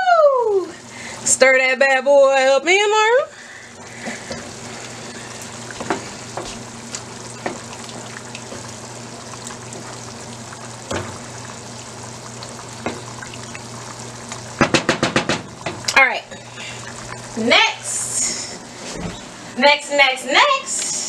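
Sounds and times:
pot cooking hiss: 0.0s - 21.0s
spoon knocking against pot: 14.6s - 15.8s.

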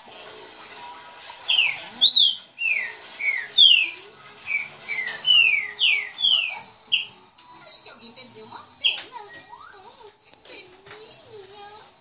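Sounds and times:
bird singing whistled notes: 1.5s - 7.2s.

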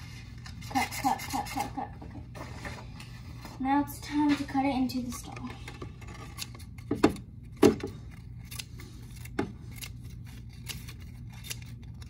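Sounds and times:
scissors snipping paper: 7.5s - 12.0s.

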